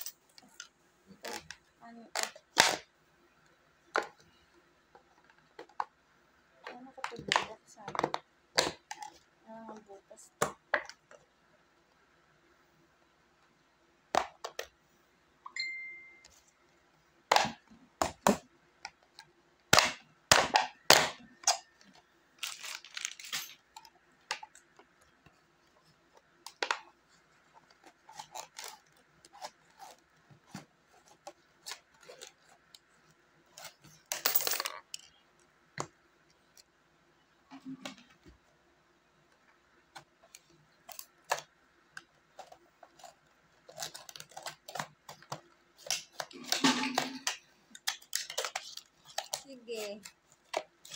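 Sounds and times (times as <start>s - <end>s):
plastic crinkling: 22.3s - 23.4s, 42.2s - 50.9s
coins clinking: 22.4s - 23.8s, 34.1s - 35.1s.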